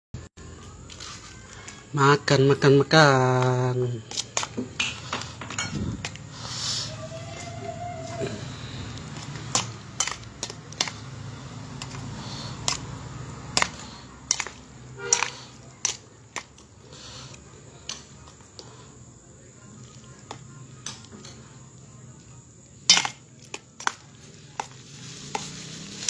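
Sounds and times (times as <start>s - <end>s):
metal utensil scraping steel basin: 9.2s - 11.0s, 13.6s - 16.0s.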